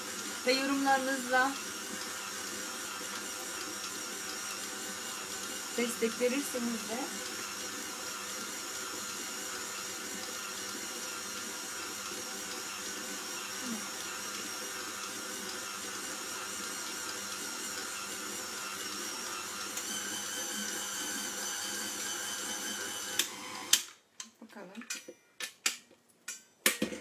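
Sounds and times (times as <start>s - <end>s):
stand mixer motor whining: 0.0s - 23.9s.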